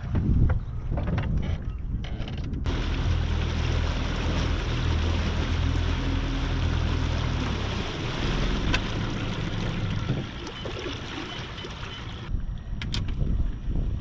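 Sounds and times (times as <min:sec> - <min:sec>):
wind buffeting microphone: 0:00.0 - 0:14.0
water lapping around boat: 0:00.4 - 0:12.3
low motor hum: 0:02.6 - 0:12.5.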